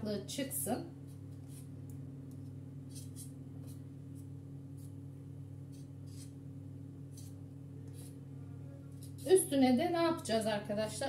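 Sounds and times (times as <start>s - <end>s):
low hum: 0.0s - 11.0s
knife scraping spatula: 2.9s - 5.0s, 5.7s - 6.4s.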